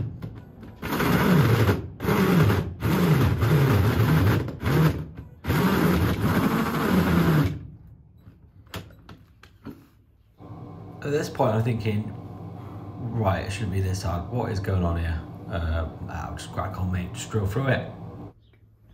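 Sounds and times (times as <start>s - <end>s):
drill straining through metal panel: 0.7s - 7.7s.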